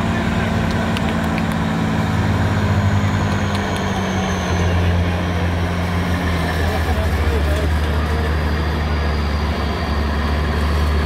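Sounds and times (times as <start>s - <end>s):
truck engine running under load: 0.0s - 11.0s.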